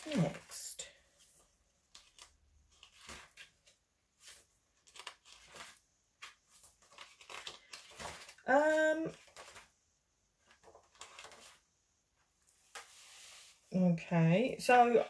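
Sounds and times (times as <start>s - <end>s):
paper pages rustling and flipping: 0.0s - 9.8s, 10.4s - 11.7s.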